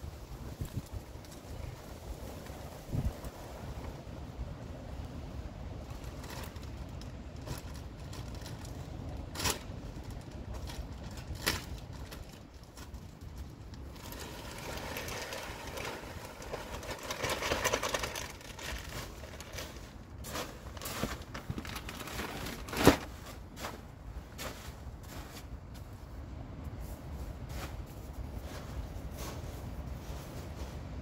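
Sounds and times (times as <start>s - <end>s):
wind buffeting microphone: 0.0s - 12.6s
plastic bag crinkling: 6.0s - 23.2s
soil pouring from a bag: 13.8s - 23.5s.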